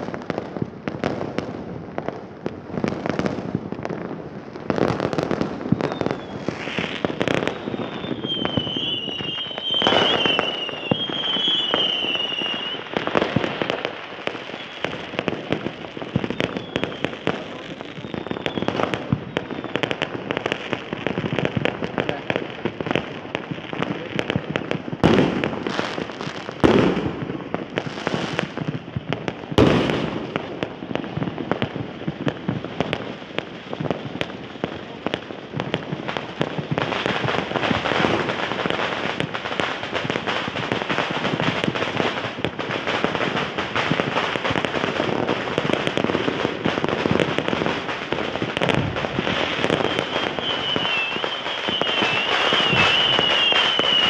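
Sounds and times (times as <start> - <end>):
firecrackers crackling: 0.0 - 54.0
firework booms: 0.0 - 54.0
firework whistle: 5.2 - 20.8, 45.6 - 54.0.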